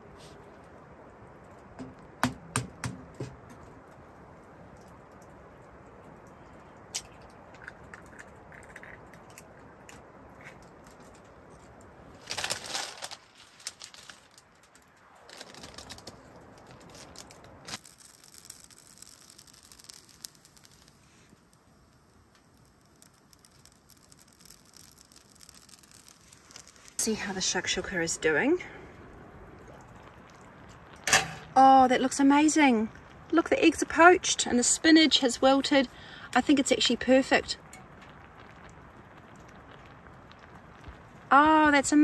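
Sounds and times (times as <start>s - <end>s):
pan simmering hiss: 0.0s - 42.0s
plastic bag crinkling: 12.2s - 21.2s.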